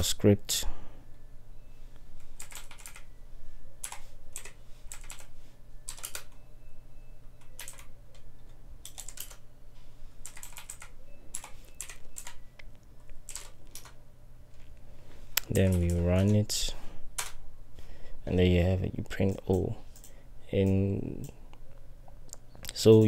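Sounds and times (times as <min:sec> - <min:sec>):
steady low hum: 0:00.0 - 0:23.0
keyboard typing: 0:02.2 - 0:03.1, 0:03.8 - 0:06.4, 0:07.2 - 0:09.5, 0:10.2 - 0:14.0, 0:15.4 - 0:16.5, 0:17.1 - 0:17.4, 0:19.1 - 0:21.4.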